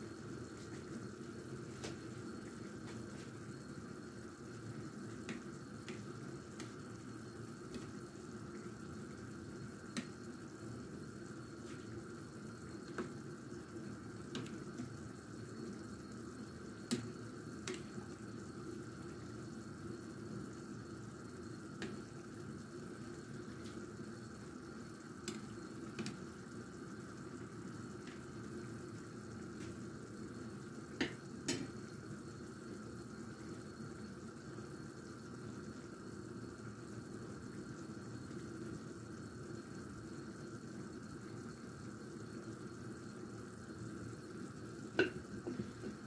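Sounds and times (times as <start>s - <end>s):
broth boiling in a pot: 0.0s - 46.0s.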